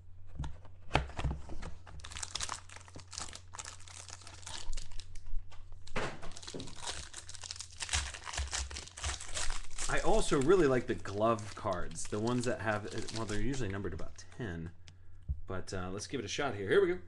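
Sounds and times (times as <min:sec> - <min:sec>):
foil wrapper crinkling and tearing: 0:01.9 - 0:05.2, 0:05.8 - 0:14.2.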